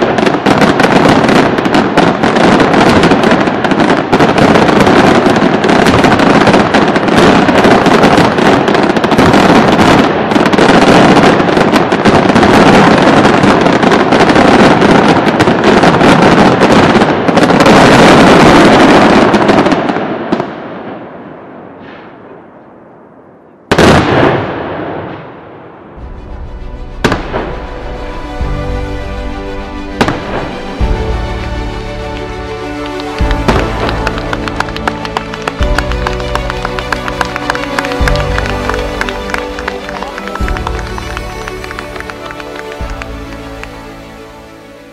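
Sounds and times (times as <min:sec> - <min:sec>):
fireworks bangs and crackles: 0:00.0 - 0:44.9
music: 0:26.0 - 0:44.9.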